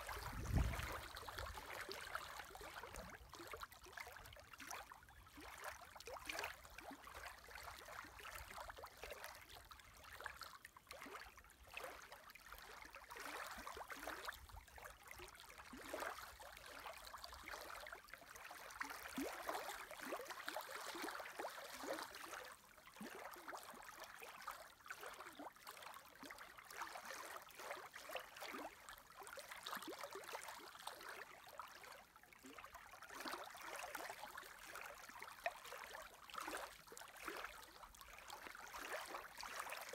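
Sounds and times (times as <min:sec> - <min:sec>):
wind rumble on microphone: 0:00.0 - 0:01.6
lake waves lapping and splashing: 0:00.0 - 0:39.9.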